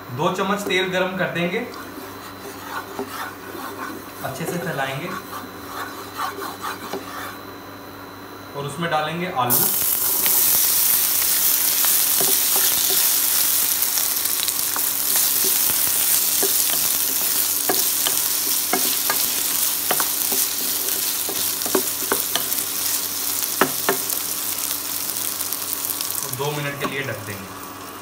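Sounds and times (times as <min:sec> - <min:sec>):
potatoes sizzling in hot oil: 0:09.5 - 0:28.0.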